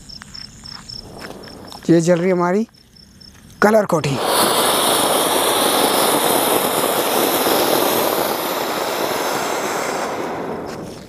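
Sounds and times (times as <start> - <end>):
firework fountain hissing: 1.0 - 2.2, 4.0 - 11.0.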